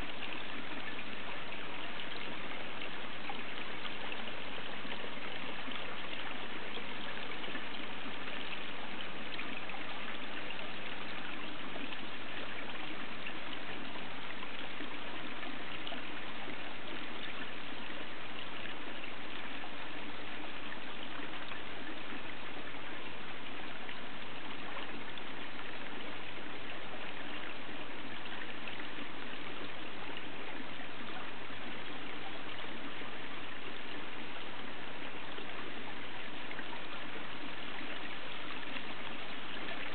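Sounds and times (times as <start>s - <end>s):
water trickling in a pond: 0.0s - 39.9s.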